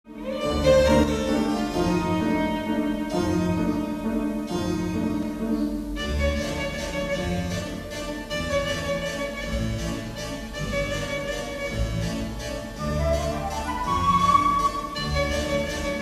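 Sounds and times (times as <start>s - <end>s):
orchestral strings music: 0.1s - 16.0s.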